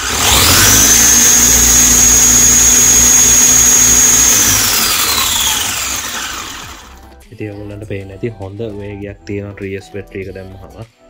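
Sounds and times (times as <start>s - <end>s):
electric motor whine: 0.0s - 7.1s.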